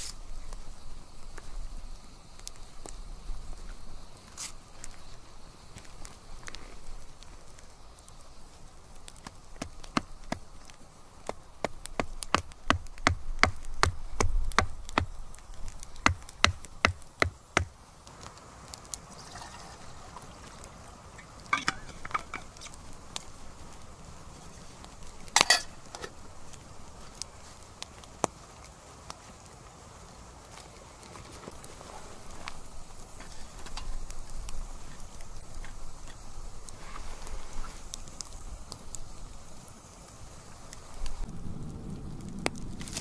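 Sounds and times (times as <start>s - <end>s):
hatchet chopping wood: 11.3s - 15.1s, 16.0s - 17.7s.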